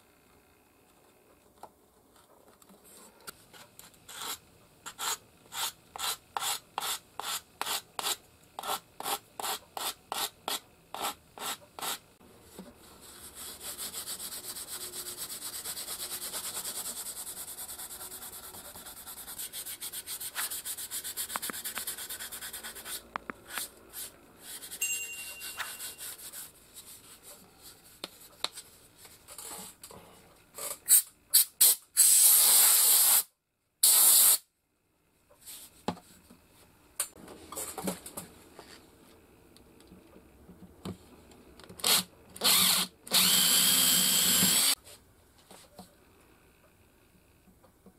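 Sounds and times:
hand sanding wood: 13.0s - 23.0s.

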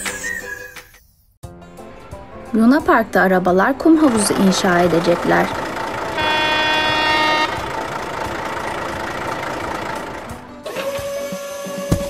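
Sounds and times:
background music: 0.0s - 12.0s
engine-like noise: 3.5s - 12.0s
toy truck horn toot: 6.0s - 7.9s
long held tone: 6.1s - 7.9s.

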